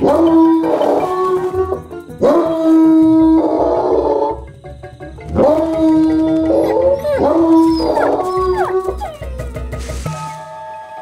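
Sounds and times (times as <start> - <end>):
background music: 0.0 - 11.0
bird mimicking dog howl: 5.4 - 9.4.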